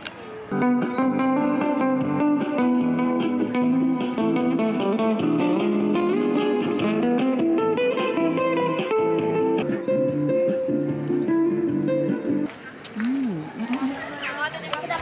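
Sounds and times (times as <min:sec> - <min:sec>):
picked guitar melody: 0:00.5 - 0:12.5.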